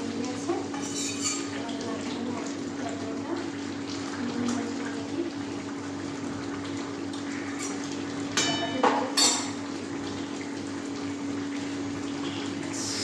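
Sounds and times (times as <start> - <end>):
steel kitchen utensils clinking: 0.8 - 1.6, 8.4 - 9.6.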